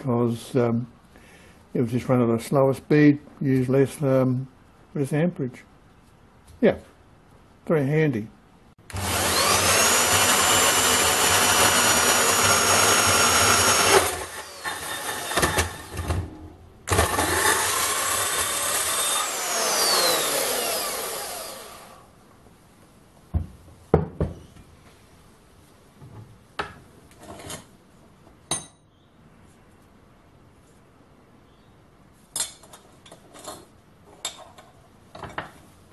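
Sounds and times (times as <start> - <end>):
bandsaw cutting metal tube: 8.9 - 16.3, 16.9 - 22.0.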